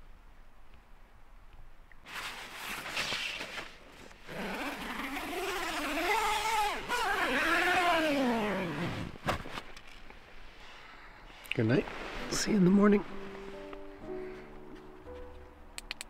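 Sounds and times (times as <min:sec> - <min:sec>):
zipper being pulled: 0:02.1 - 0:09.6.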